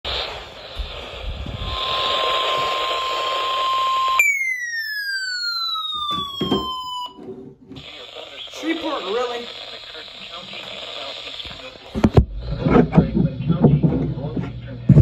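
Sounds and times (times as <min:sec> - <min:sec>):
radio static: 0:00.0 - 0:04.2, 0:06.5 - 0:15.0
electronic tone gliding downward: 0:01.8 - 0:07.2.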